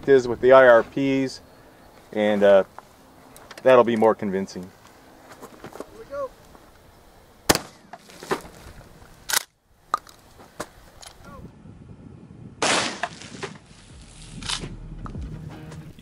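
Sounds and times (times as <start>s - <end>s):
shotgun firing: 7.5s - 7.9s, 12.6s - 13.5s.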